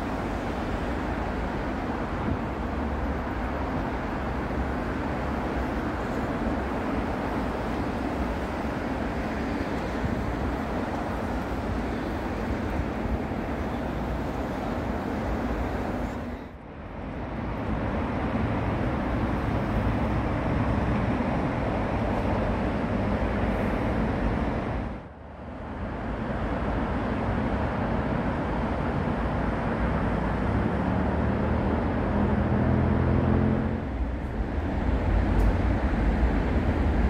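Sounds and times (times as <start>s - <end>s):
city road traffic: 0.0s - 37.0s.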